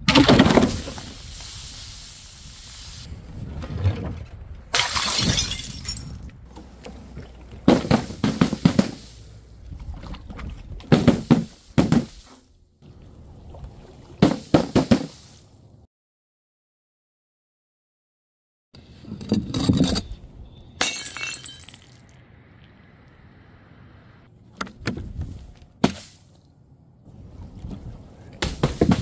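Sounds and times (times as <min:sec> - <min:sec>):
glass bottles shattering: 0:04.8 - 0:06.2, 0:20.8 - 0:22.1.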